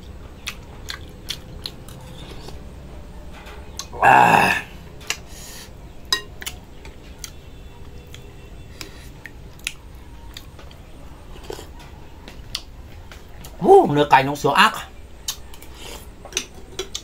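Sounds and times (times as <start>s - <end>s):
utensils clinking against bowl: 6.0s - 7.0s.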